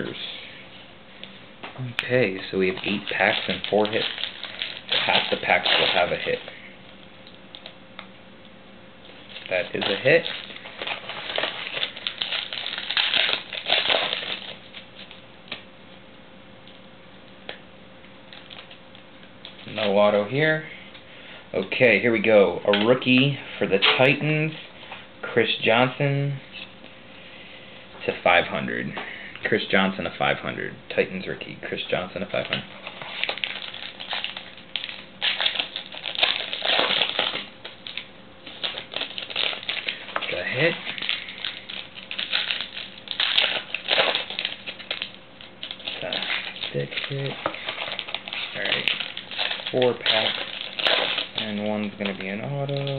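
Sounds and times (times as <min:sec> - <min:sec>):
foil wrapper crinkling: 0:01.9 - 0:07.8, 0:09.0 - 0:15.7, 0:18.2 - 0:20.2, 0:31.9 - 0:52.9.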